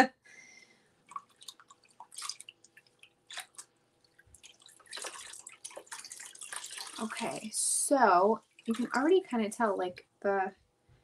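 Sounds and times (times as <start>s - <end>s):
water dripping and splashing: 1.0s - 9.4s.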